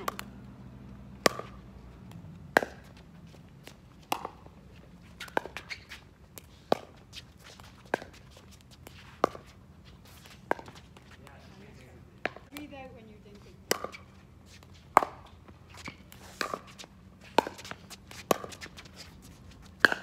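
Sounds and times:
paddles hitting plastic ball: 0:00.0 - 0:00.3, 0:01.2 - 0:03.0, 0:04.0 - 0:04.5, 0:13.6 - 0:14.1.

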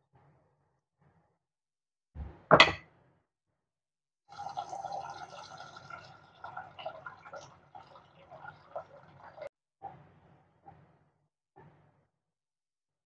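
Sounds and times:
loud clunk: 0:02.5 - 0:02.8
water running into a pot of rice: 0:04.3 - 0:09.5.

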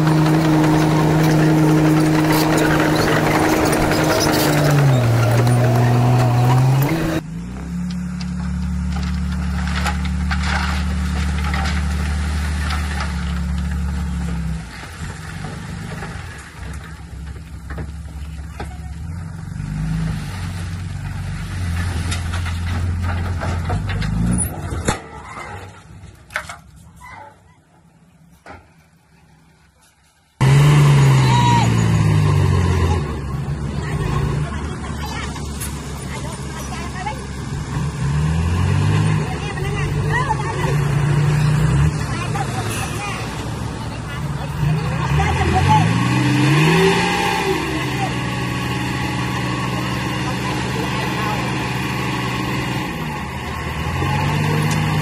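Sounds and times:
heavy diesel engine running: 0:00.0 - 0:24.3, 0:30.4 - 0:55.0
diesel engine revving: 0:00.0 - 0:25.0, 0:30.4 - 0:55.0.

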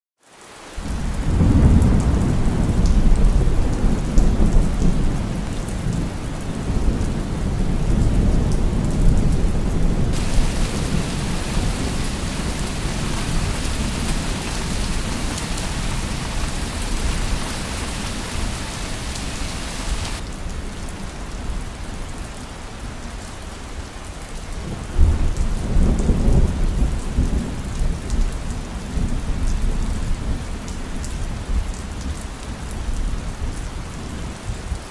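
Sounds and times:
rolling thunder rumbles: 0:00.9 - 0:20.2
rain hiss: 0:09.8 - 0:29.4
bright hiss: 0:10.2 - 0:20.2.

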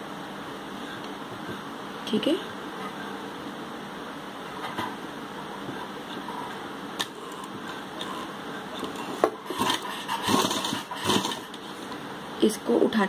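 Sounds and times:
sewing machine stitching: 0:07.1 - 0:11.6.

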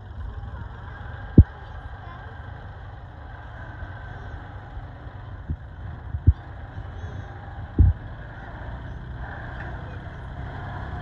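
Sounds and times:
tractor engine running: 0:00.0 - 0:11.0
low thumps: 0:05.4 - 0:06.4, 0:07.8 - 0:08.1.

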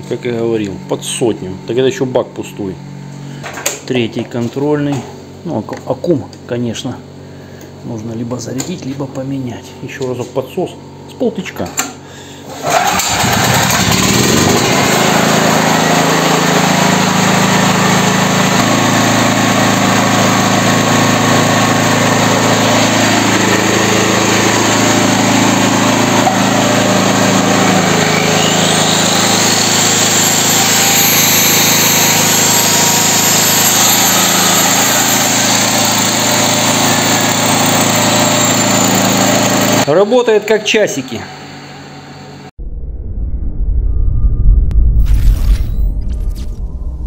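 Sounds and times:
generator engine running: 0:12.0 - 0:40.1
angle grinder whining: 0:12.4 - 0:40.0.

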